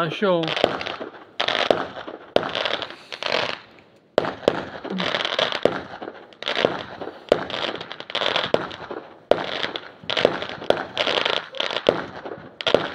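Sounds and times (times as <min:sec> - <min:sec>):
crackling fizz of fireworks: 0:00.0 - 0:12.9
fireworks bangs: 0:00.0 - 0:12.9.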